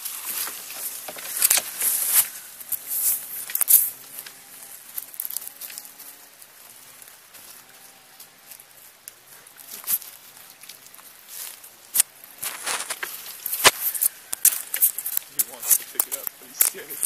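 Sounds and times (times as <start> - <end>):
rustling in dry grass: 0.0 - 17.0
monkey scratching on microphone: 11.9 - 16.3.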